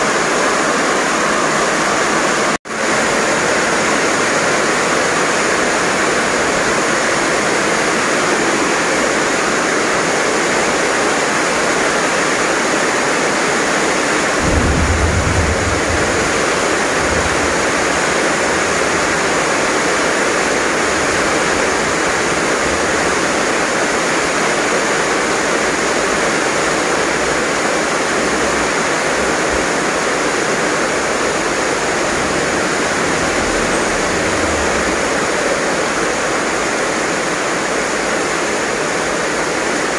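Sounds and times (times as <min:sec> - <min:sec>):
heavy rain pouring: 0:00.0 - 0:39.9
low rumble: 0:14.4 - 0:23.0.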